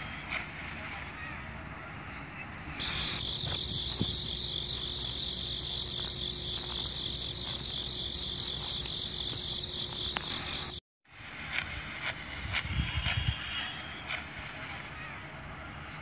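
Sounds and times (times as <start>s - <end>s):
high-pitched insect trill: 2.8s - 10.8s.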